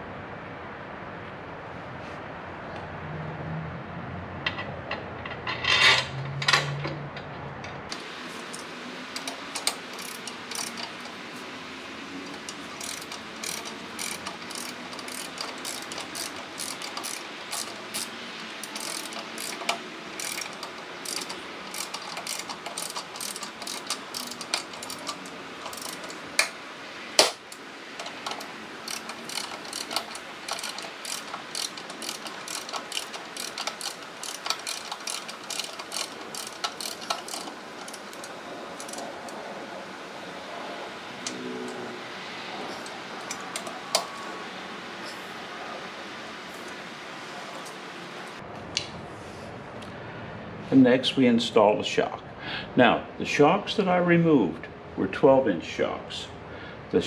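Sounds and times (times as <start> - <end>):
socket ratchet clicking: 7.9 - 11.2, 12.2 - 26.6, 27.2 - 39.4.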